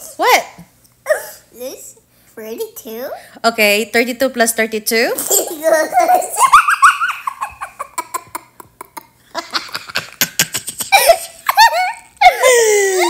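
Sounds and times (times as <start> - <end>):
young child laughing: 5.3 - 13.0.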